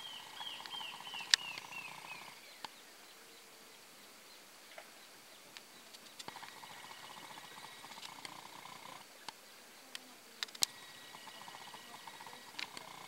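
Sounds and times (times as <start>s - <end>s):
rodents purring chatter: 0.0s - 2.6s, 5.9s - 9.1s, 10.4s - 13.0s
sharp clicks: 0.6s - 1.7s, 5.5s - 6.7s, 9.2s - 10.8s, 12.4s - 13.0s.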